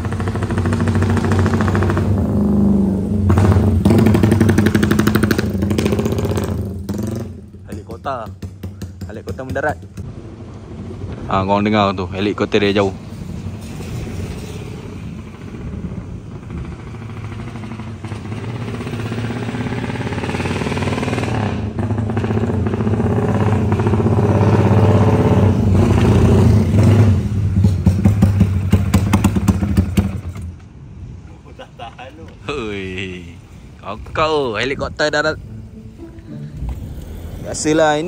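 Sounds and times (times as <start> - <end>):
motorcycle engine choppy running: 0.0 - 2.4.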